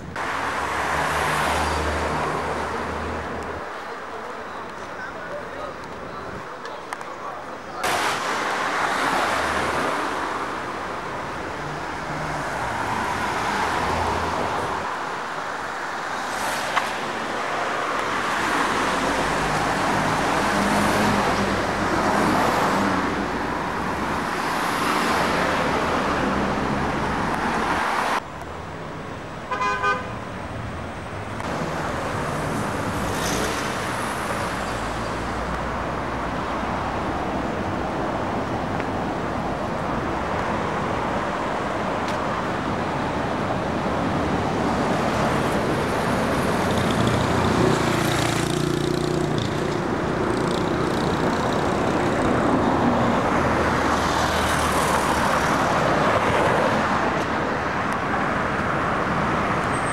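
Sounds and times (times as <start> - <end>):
cars passing: 0.0 - 59.9
car horn toot: 29.5 - 30.1.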